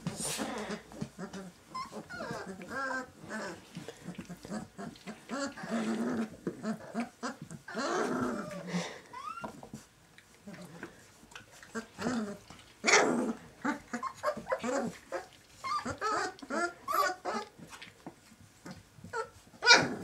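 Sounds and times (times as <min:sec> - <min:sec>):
puppy crying: 0:00.6 - 0:03.6, 0:04.4 - 0:09.7, 0:11.7 - 0:17.6, 0:19.0 - 0:20.0
puppies high calls: 0:00.6 - 0:03.7, 0:11.8 - 0:17.7, 0:19.0 - 0:20.0.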